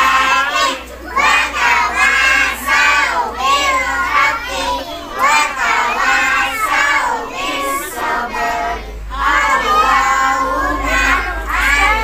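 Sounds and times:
children singing together: 0:00.0 - 0:12.0.

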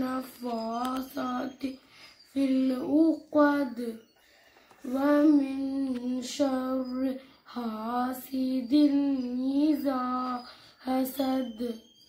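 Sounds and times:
woman chanting recitation: 0:04.8 - 0:11.9.

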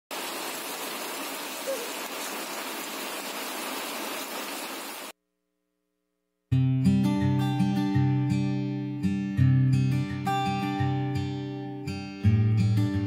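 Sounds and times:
steady rain: 0:00.1 - 0:05.1.

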